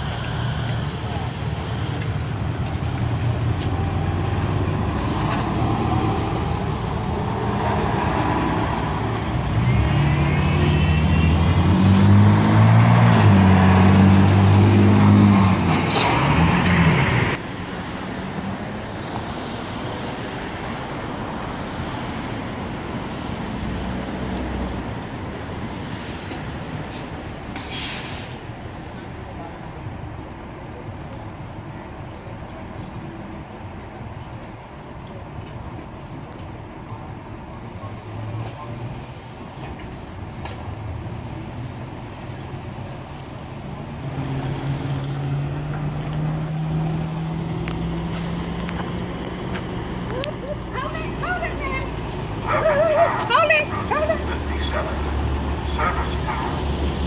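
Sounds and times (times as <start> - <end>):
diesel bus engine pulling away: 0.0 - 17.4, 18.0 - 29.1, 36.6 - 52.8
street traffic: 0.0 - 57.0
hiss: 27.5 - 28.4.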